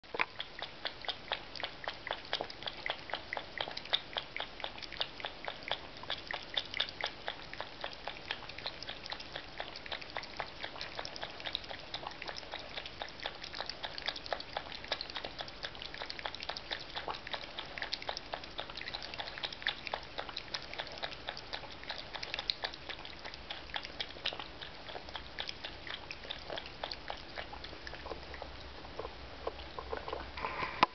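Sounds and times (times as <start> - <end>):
cat lapping water: 0.0 - 30.9.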